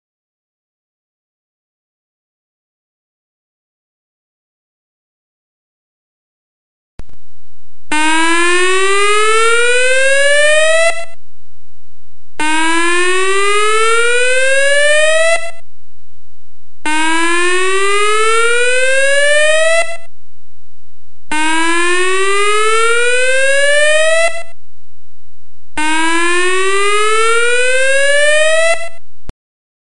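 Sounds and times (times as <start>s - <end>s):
low hum: 7.0s - 29.3s
warning siren rising tone: 7.9s - 11.2s, 12.4s - 15.6s, 16.8s - 20.1s, 21.3s - 24.6s, 25.8s - 29.1s.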